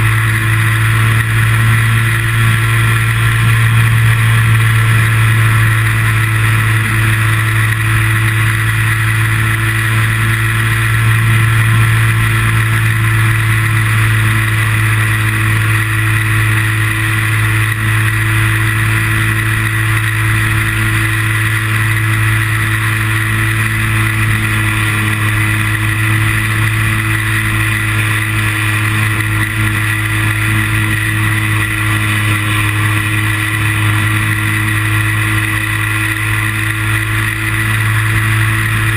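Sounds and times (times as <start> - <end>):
high whine: 0.0 - 38.9
small aircraft motor drone: 0.0 - 38.9.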